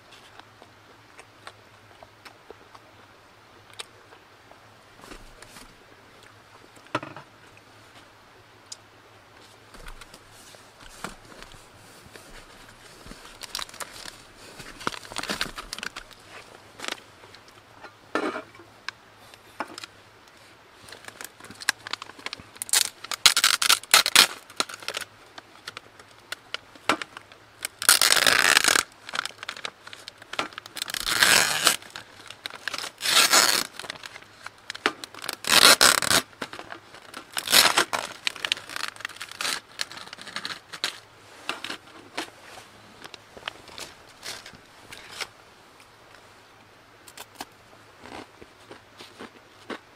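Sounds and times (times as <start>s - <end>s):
plastic wrapper tearing and crinkling: 12.8s - 17.0s, 20.9s - 42.3s, 43.0s - 45.3s.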